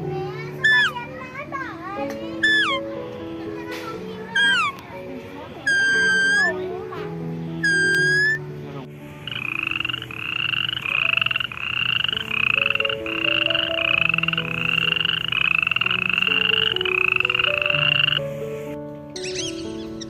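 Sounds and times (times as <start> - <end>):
rasping frog-like croaks: 0.6 - 1.0, 2.4 - 2.8, 4.4 - 4.8, 5.7 - 6.6, 7.6 - 8.4, 9.2 - 18.4.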